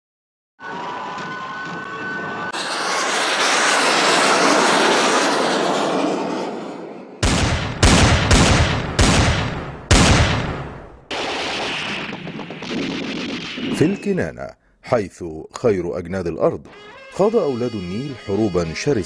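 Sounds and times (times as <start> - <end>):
jet fighter passing over: 0.6 - 14.2
explosions: 7.2 - 14.2.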